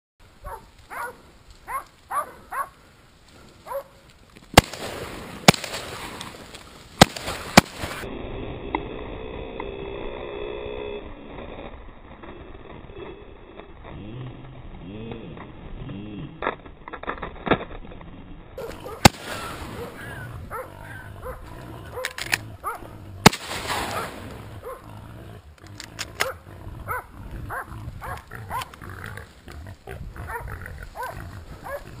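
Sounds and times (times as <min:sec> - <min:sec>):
shotgun shots: 0:04.6 - 0:06.4, 0:07.0 - 0:08.0, 0:18.6 - 0:20.2, 0:23.2 - 0:24.5
wild boar squealing and grunting: 0:18.6 - 0:32.0.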